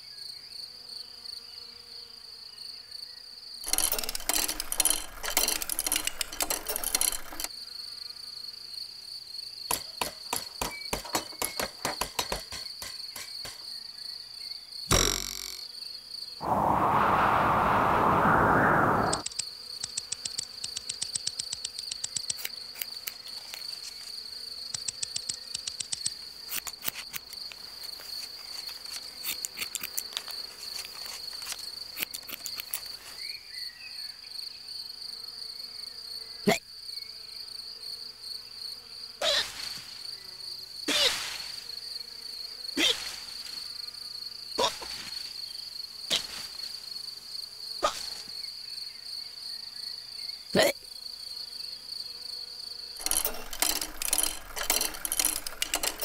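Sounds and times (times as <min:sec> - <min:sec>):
rapid insect clicking: 0:03.6 - 0:07.5, 0:19.1 - 0:33.0, 0:53.0 - 0:56.0
cartoon hiccups: 0:47.8 - 0:48.1, 0:50.6 - 0:50.8.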